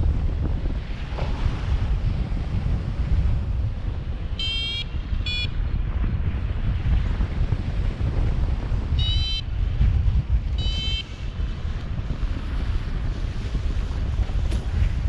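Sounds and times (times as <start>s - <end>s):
wind buffeting microphone: 0.0s - 15.0s
short high electronic beeps: 4.4s - 5.5s, 9.0s - 9.4s, 10.6s - 11.0s.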